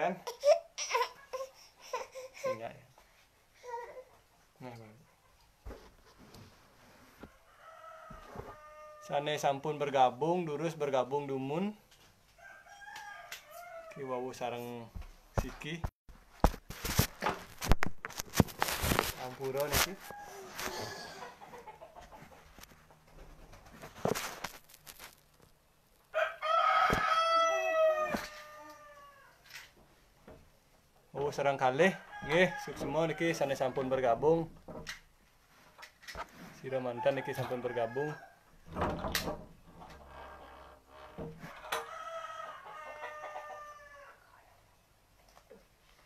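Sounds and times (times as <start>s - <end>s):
rooster crowing: 7.4s - 9.4s, 12.4s - 14.1s, 20.0s - 21.4s, 26.1s - 29.4s, 31.9s - 33.8s, 37.0s - 38.4s, 41.5s - 44.3s
rustle: 22.5s - 30.0s.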